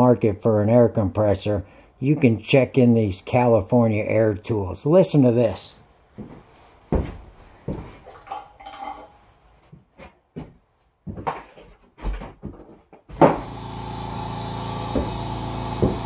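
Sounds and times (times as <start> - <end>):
knocks and clunks: 11.1 - 13.5, 14.9 - 16.0
air compressor running: 13.1 - 16.0.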